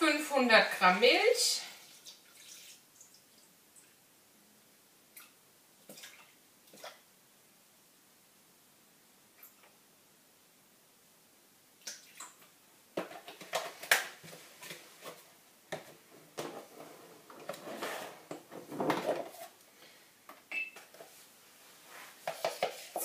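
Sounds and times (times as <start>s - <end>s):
rustling: 20.8s - 23.0s.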